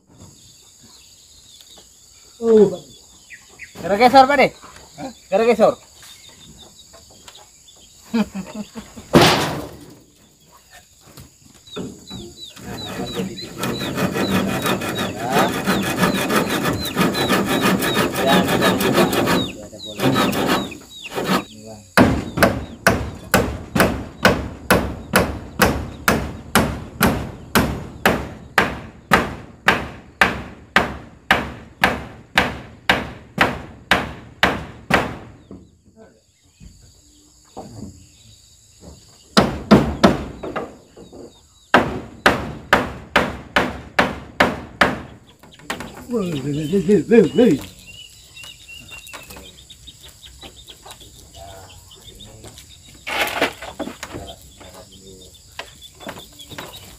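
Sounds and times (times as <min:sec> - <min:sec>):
hand saw cutting wood: 0:12.5 - 0:21.5, 0:53.1 - 0:54.0.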